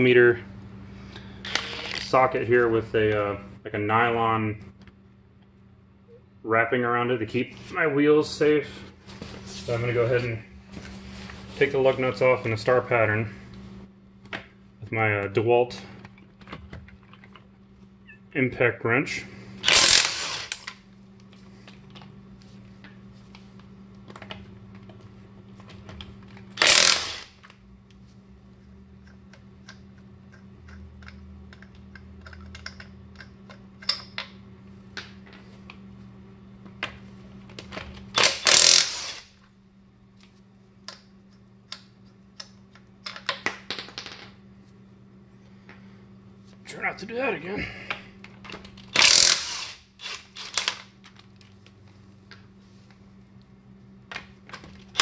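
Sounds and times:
steady low hum: 0.0 - 55.0
impact wrench hammering: 19.6 - 20.6, 26.6 - 27.4, 38.2 - 39.2, 49.0 - 50.8.

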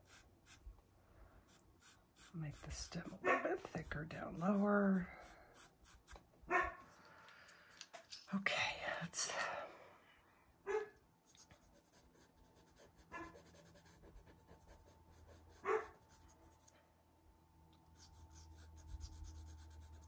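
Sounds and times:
pencil scratching on sanded paper: 0.0 - 0.7, 1.5 - 6.2, 11.5 - 16.7, 18.0 - 20.0.

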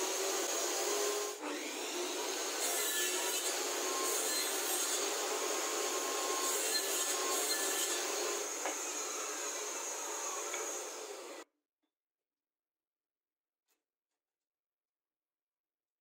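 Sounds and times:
table saw whirring: 0.0 - 11.4.

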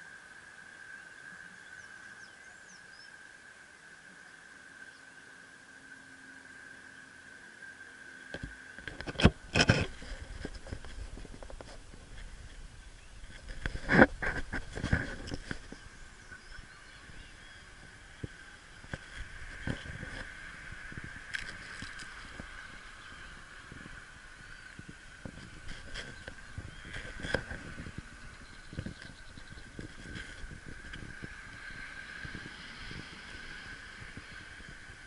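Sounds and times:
steady high hum: 0.0 - 35.0
camera handling knocks and rubbing: 8.4 - 12.2.

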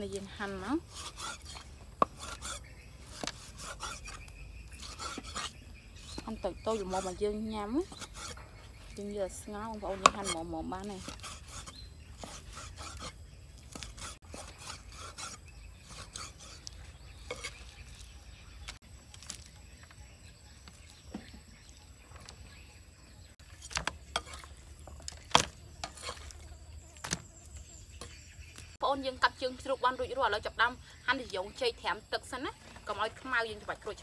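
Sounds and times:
meat rubbed and scraped: 0.0 - 18.8, 23.5 - 27.7.

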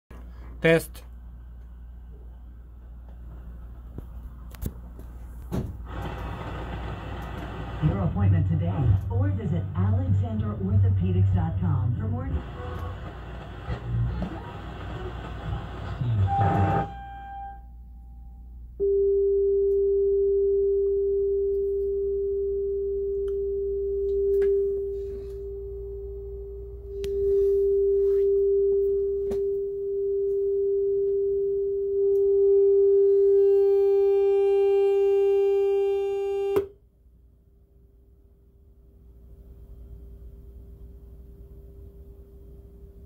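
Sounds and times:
sine-wave test tone: 16.0 - 36.8.

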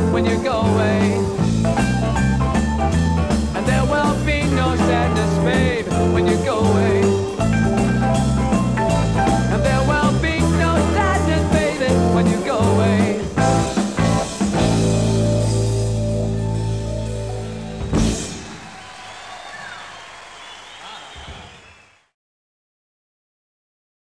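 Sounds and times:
rock band playing live: 0.0 - 19.0.

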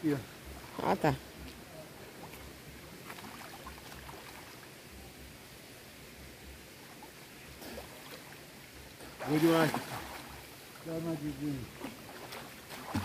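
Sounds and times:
steady background hiss: 0.0 - 13.0
water lapping and splashing: 0.3 - 4.9, 6.4 - 13.0.

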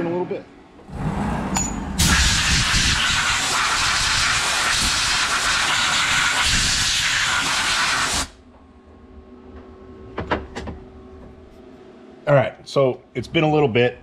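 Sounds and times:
compressed air blow gun hissing: 2.0 - 8.4.

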